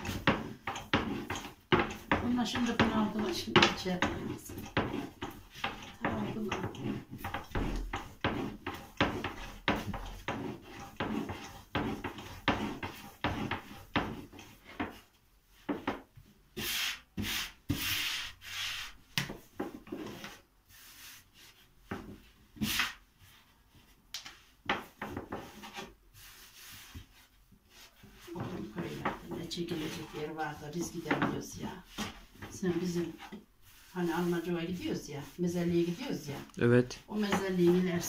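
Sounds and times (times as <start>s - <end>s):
rolling pin rolling on wooden board: 0.0s - 38.0s.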